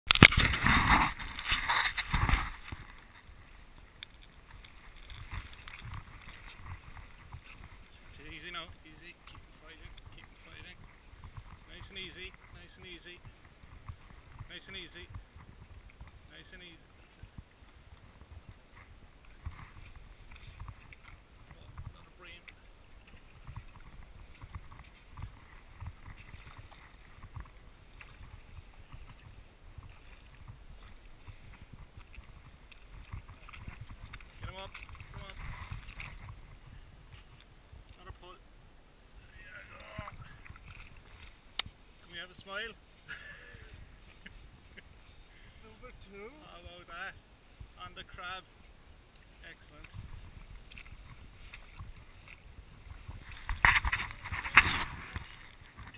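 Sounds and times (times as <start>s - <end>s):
water lapping at shoreline: 0.1s - 55.9s
faint ticks: 3.9s - 7.5s
wind buffeting microphone: 22.9s - 37.9s, 49.9s - 55.9s.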